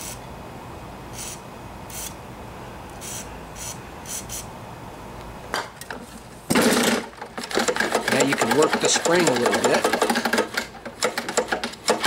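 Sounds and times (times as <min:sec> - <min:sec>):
starter rope pulled rasping: 0:06.5 - 0:12.0.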